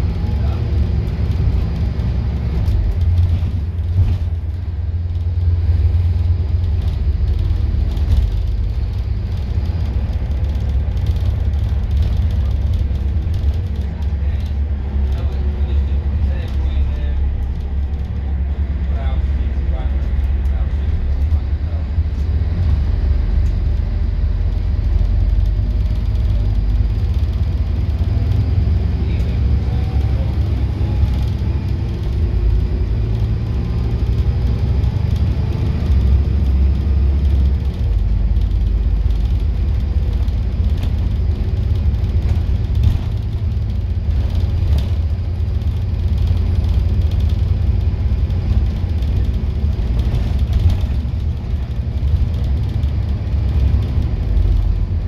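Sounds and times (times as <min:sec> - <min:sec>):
bus engine and road rumble: 0:00.0 - 0:55.0
bodywork rattles: 0:33.8 - 0:54.9.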